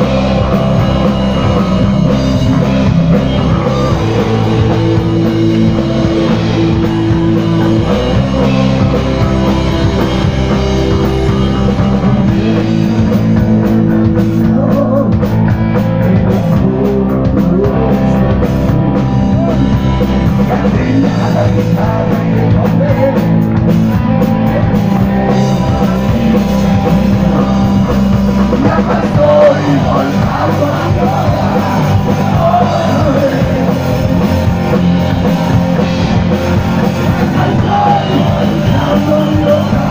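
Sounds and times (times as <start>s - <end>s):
person singing: 0.0s - 23.5s, 24.4s - 35.9s, 36.8s - 39.9s
drum kit: 0.0s - 39.9s
electric guitar: 0.0s - 39.9s.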